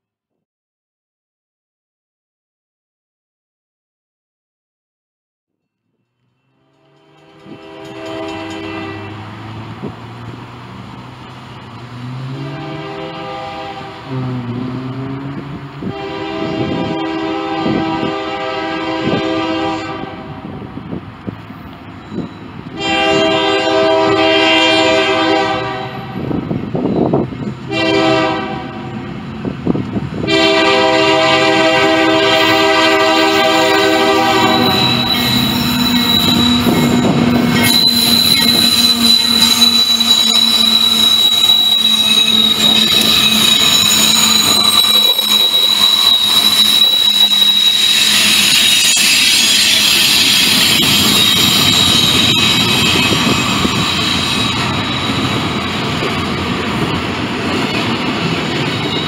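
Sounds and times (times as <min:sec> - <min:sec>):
locomotive air horn: 0:06.2 - 0:09.5, 0:12.0 - 0:20.6, 0:22.7 - 0:26.4, 0:27.6 - 0:29.0, 0:30.2 - 0:55.3
locomotive engine and wheel noise: 0:06.2 - 0:59.0
high-pitched wheel squeal: 0:21.9 - 0:24.6, 0:32.5 - 0:56.2, 0:58.5 - 0:59.0.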